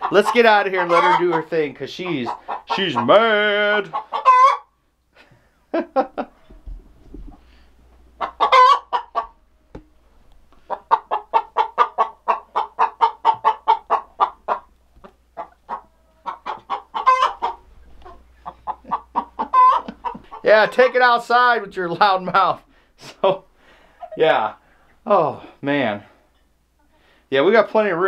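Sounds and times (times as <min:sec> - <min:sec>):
hen cackling: 0:00.0 - 0:01.5, 0:02.1 - 0:04.7, 0:08.2 - 0:09.4, 0:10.6 - 0:20.9
hen squawks: 0:03.9 - 0:04.7, 0:15.4 - 0:20.4.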